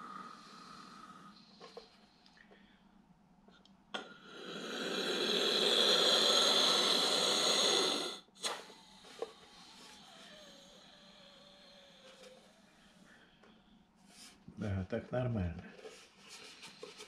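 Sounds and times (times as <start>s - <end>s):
air hissing into balloon: 4.2s - 12.6s.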